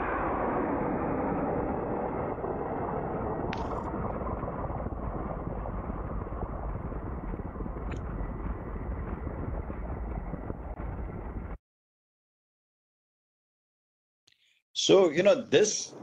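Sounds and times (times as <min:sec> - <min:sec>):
drone engine rumble: 0:00.0 - 0:11.6
wind noise: 0:00.0 - 0:11.6.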